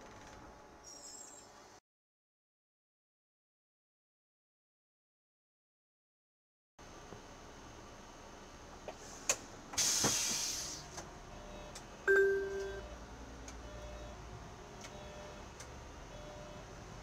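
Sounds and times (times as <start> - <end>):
bus engine running low: 6.8 - 17.0
compressed air hiss: 9.0 - 10.9
two-tone beep: 12.1 - 12.9.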